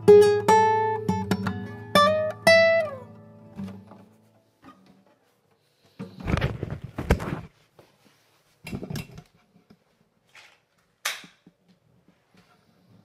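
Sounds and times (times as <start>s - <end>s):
guitar handling rustle: 3.5s - 10.8s.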